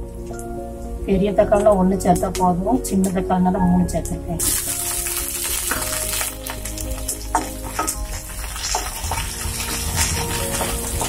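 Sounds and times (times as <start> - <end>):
food sizzling in hot oil: 4.4 - 11.0.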